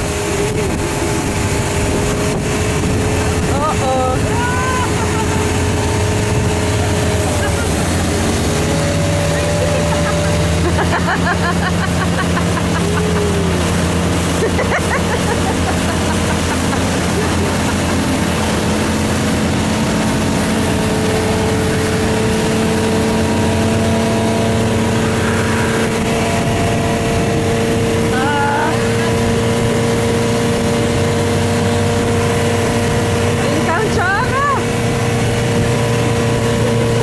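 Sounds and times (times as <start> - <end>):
motorboat engine running: 0.0 - 37.0
rushing water: 0.0 - 37.0
wind: 0.0 - 37.0.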